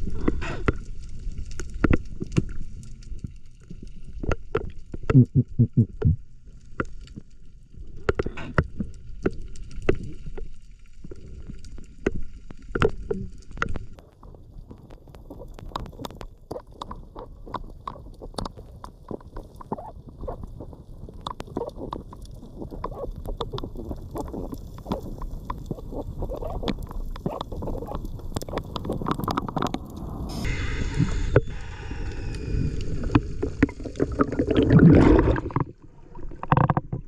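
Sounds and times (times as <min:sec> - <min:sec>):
water sloshing and gurgling: 0:06.4 - 0:30.3, 0:32.5 - 0:37.0.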